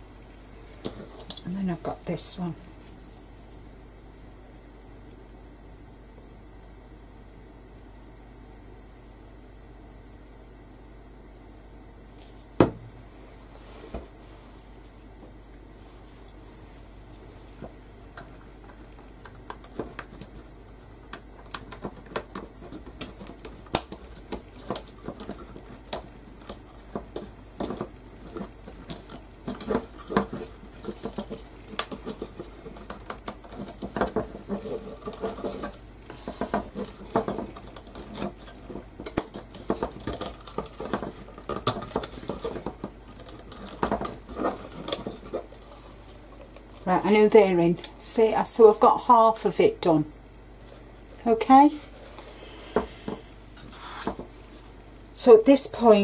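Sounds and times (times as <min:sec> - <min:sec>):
rustling: 0:19.6 - 0:47.1.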